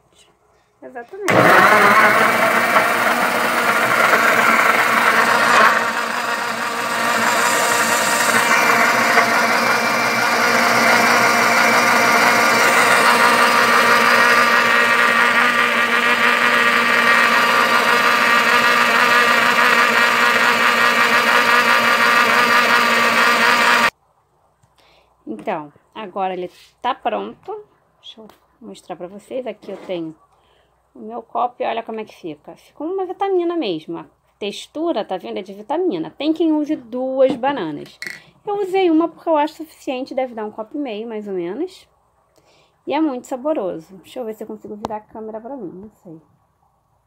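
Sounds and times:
blender motor whining: 1.3 - 23.9.

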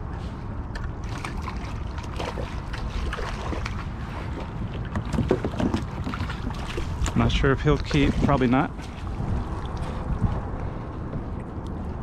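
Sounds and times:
wind rumbling on microphone: 0.0 - 12.0
small splashes and clicks: 0.7 - 9.9
water lapping: 0.8 - 11.6.

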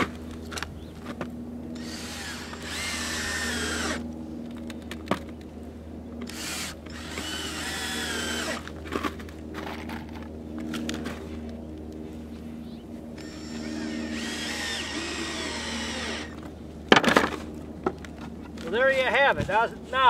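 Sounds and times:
cordless drill driving screws: 1.8 - 4.0, 6.2 - 8.7, 13.2 - 16.4.

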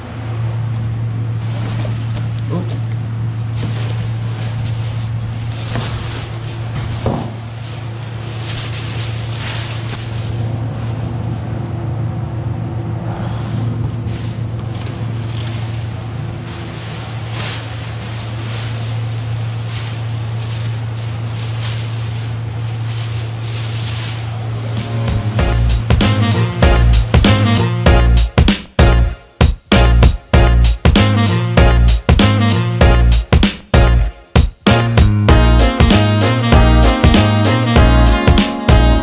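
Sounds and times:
steady low hum: 0.0 - 39.0
plastic sheeting crinkling: 0.7 - 11.9, 13.9 - 28.5.

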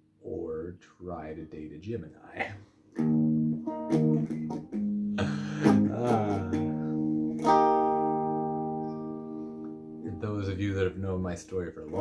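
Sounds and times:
electric guitar strumming chords: 3.0 - 10.2.

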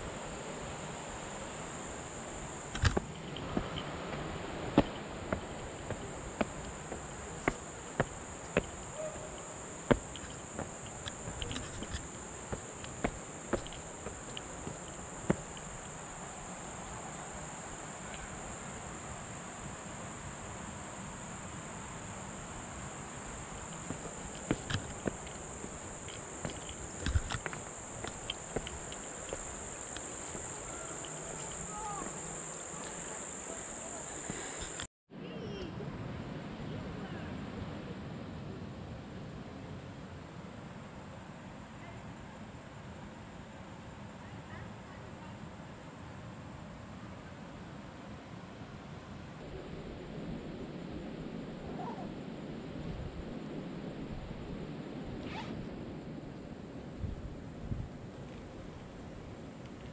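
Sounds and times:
insects droning: 0.0 - 59.9
footsteps on stone steps: 2.7 - 16.1, 23.6 - 33.1.

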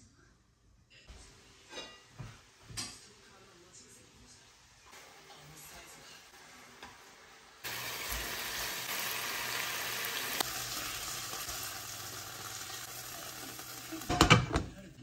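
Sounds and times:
chicken sizzling in hot oil: 4.7 - 14.4.

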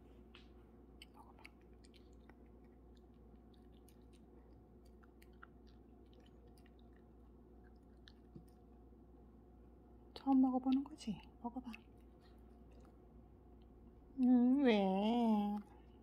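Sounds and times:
small dog chewing a treat: 0.9 - 9.0, 10.2 - 13.8.

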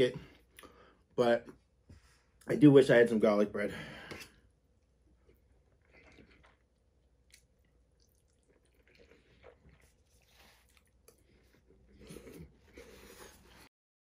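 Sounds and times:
man chewing food: 4.3 - 13.7.

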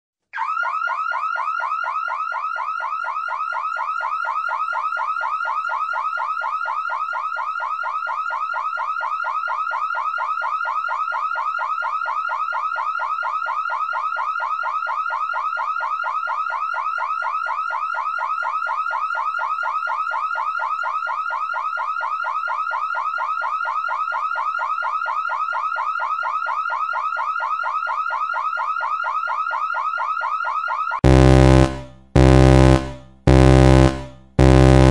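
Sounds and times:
electronic alarm sweeping tone: 31.0 - 34.9.

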